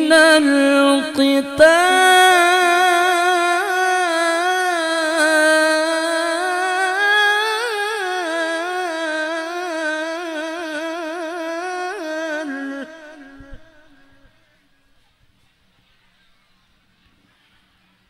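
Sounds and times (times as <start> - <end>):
man reciting with wavering trills: 0.0 - 14.9.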